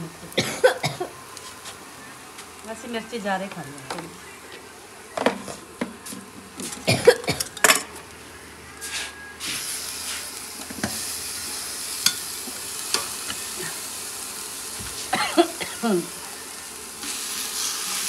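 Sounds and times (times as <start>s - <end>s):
utensils clinking against pots: 6.6s - 8.0s, 12.0s - 13.4s
vegetables sizzling in a pan: 8.8s - 18.0s.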